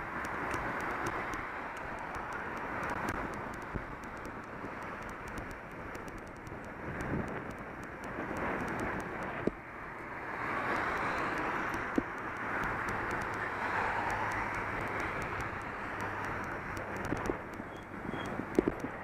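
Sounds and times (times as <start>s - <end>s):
road traffic passing: 0.0s - 19.0s.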